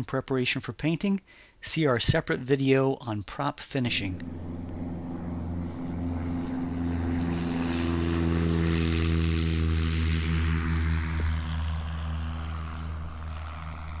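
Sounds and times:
light aircraft engine droning: 0:03.8 - 0:14.0.

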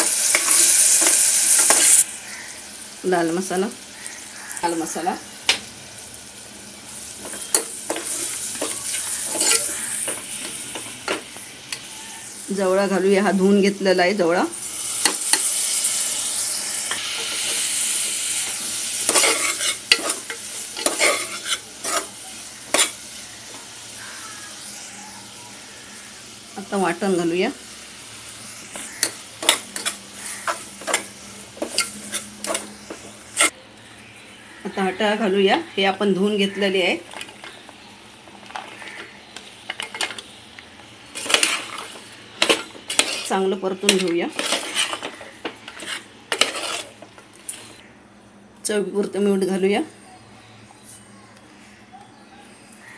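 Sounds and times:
shrimp sizzling in hot oil: 0:00.0 - 0:33.6, 0:36.2 - 0:47.8
spoon scraping pot: 0:07.2 - 0:11.9, 0:19.1 - 0:22.1, 0:28.8 - 0:33.5, 0:41.2 - 0:47.8.

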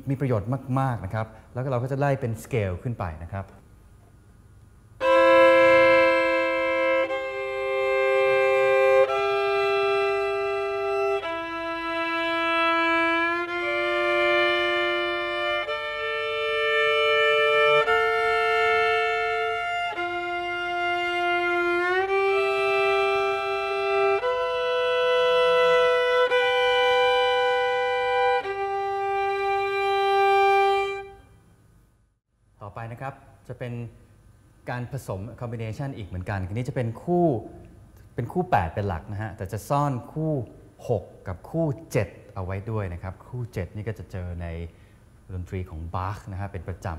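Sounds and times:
violin playing double stops: 0:05.0 - 0:31.4.

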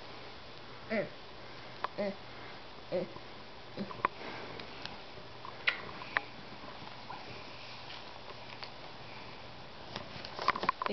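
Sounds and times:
steady background hiss: 0:00.0 - 0:10.9
small clicks and scratches: 0:09.9 - 0:10.9.

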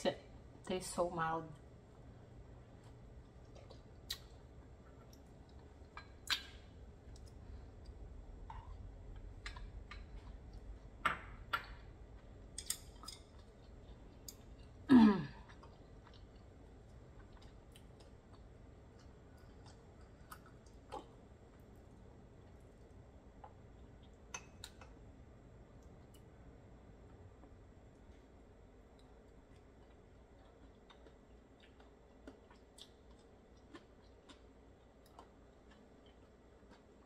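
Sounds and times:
wet chewing mouth clicks: 0:03.2 - 0:07.4.

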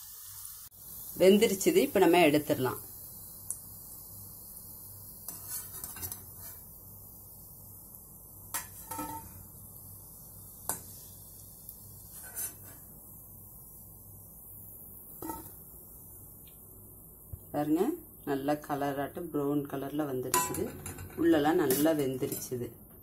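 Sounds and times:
metal spatula clinking: 0:20.3 - 0:22.6.

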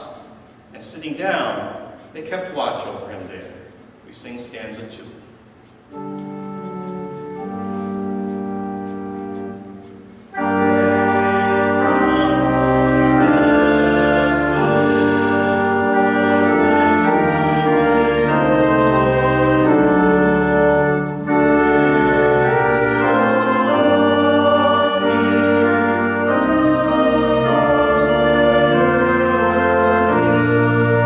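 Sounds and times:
church organ playing a hymn: 0:05.7 - 0:31.0.

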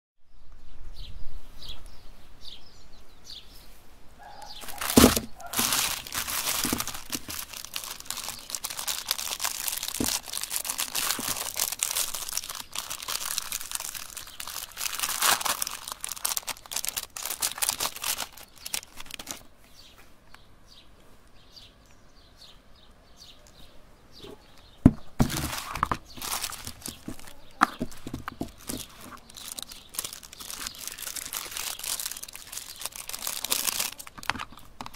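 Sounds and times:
plastic wrappers crinkling: 0:04.5 - 0:19.5, 0:25.1 - 0:34.9.

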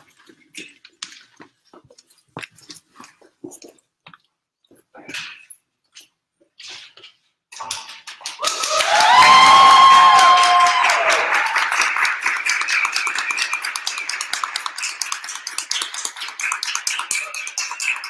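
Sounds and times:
audience applauding: 0:08.2 - 0:18.0
high cheer: 0:08.4 - 0:13.5.

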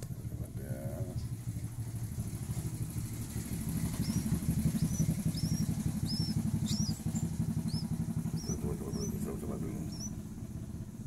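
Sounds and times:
low rumble: 0:00.0 - 0:11.0
bird nestling cheeping: 0:03.5 - 0:10.2.

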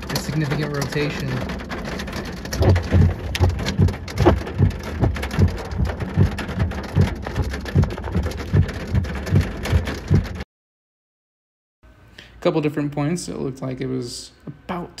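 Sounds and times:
rain pattering on windshield: 0:00.0 - 0:10.4
regular low thumping: 0:00.6 - 0:10.4.

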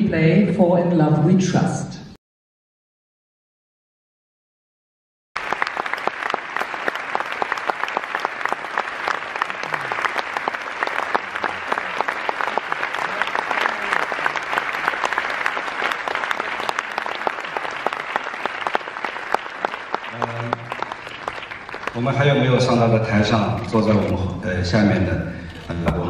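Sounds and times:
audience applause: 0:05.4 - 0:23.9.

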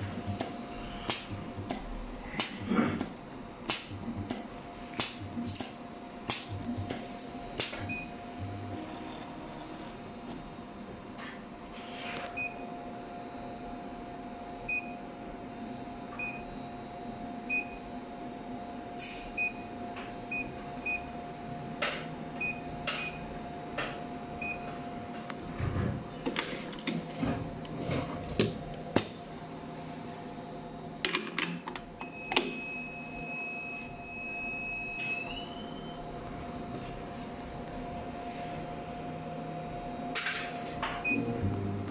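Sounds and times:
machine hum: 0:00.0 - 0:11.8, 0:33.2 - 0:41.9.

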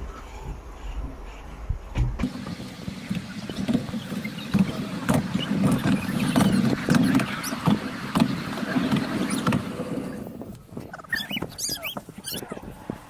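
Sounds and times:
railway carriage rumbling: 0:00.0 - 0:13.0
wheels knocking and clanking: 0:02.0 - 0:13.0
high wheel squeals: 0:02.3 - 0:10.3, 0:10.9 - 0:12.7.

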